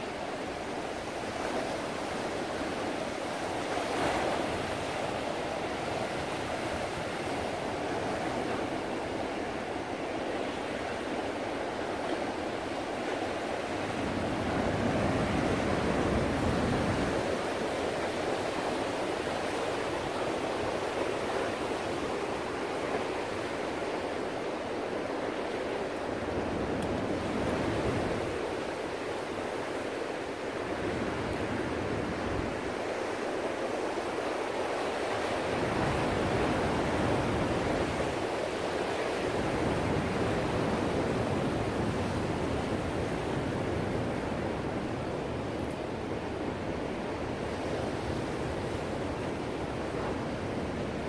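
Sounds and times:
ocean surf: 0.0s - 51.0s.

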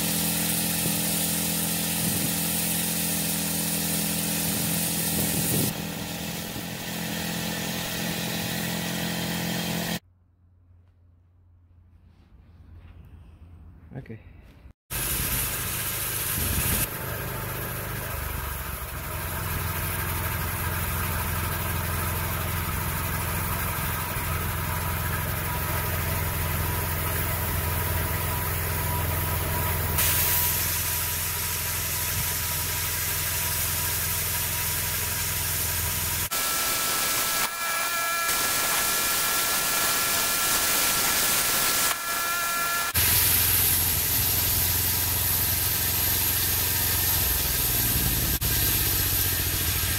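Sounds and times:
sawmill engine running: 0.0s - 10.0s, 14.9s - 49.9s
high whining tones: 36.3s - 45.1s.

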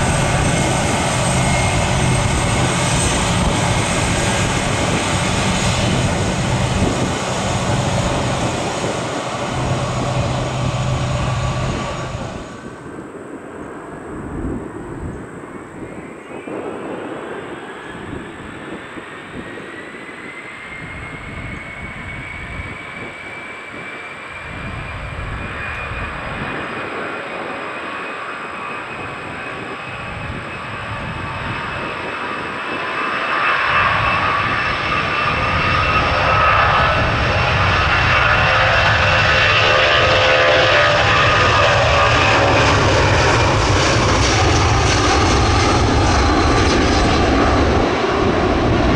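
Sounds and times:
deep rumble: 0.0s - 13.0s
jet engines whining: 0.0s - 48.9s.

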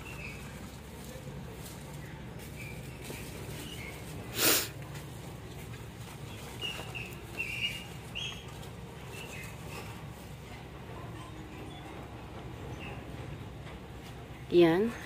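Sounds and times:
small birds chirping: 0.0s - 4.3s, 5.7s - 13.6s
breathy noise burst: 4.3s - 4.8s.

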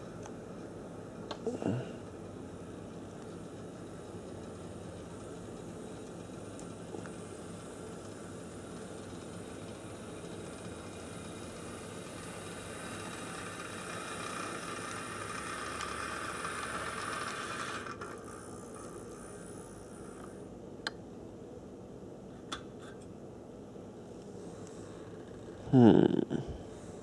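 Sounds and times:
model locomotive motor whirring: 2.8s - 20.5s.

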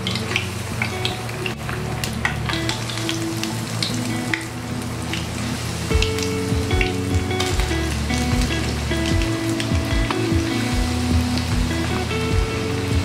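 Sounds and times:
oil popping and crackling: 0.0s - 12.2s.

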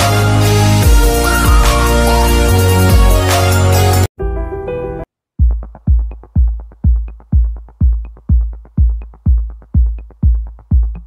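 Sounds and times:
electronic dance music: 0.0s - 4.1s
booming kick drum: 5.4s - 11.0s.

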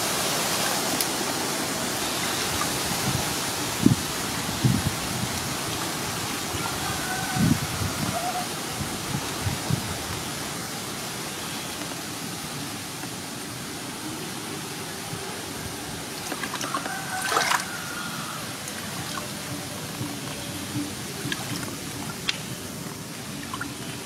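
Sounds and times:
shallow water trickling: 16.1s - 24.0s.

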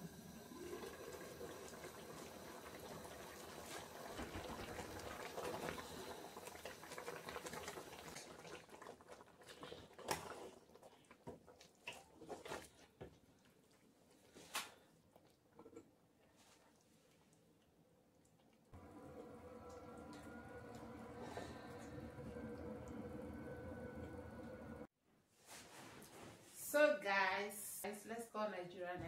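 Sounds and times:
soup boiling and bubbling: 0.0s - 14.2s, 18.5s - 24.9s.

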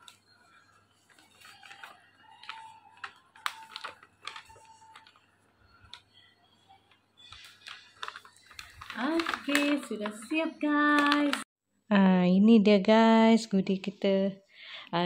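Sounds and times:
paper bag crinkling: 0.0s - 6.3s, 7.2s - 11.4s
faint background music: 0.0s - 15.0s.

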